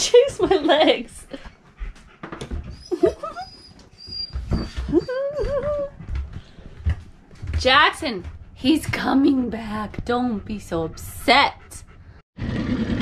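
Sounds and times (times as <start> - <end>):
dog whining and howling: 2.7 - 6.0.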